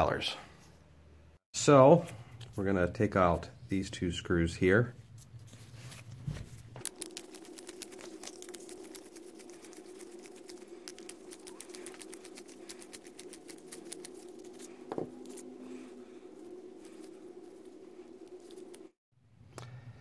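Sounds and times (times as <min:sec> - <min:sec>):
steady hum: 0:06.3 - 0:19.0.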